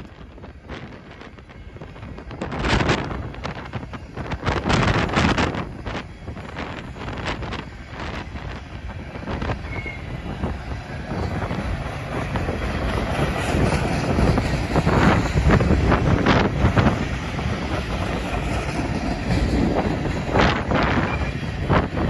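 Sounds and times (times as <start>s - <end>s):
freight train wheels rumbling: 0.0s - 22.0s
wheels clacking on rails: 0.0s - 22.0s.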